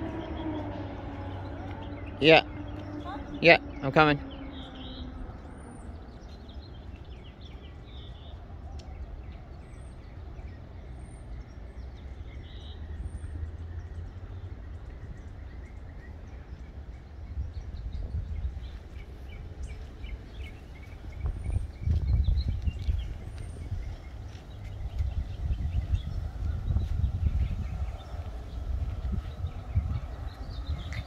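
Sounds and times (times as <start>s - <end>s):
faint high bird chirps: 0.0s - 9.6s
low uneven rumble: 0.0s - 31.0s.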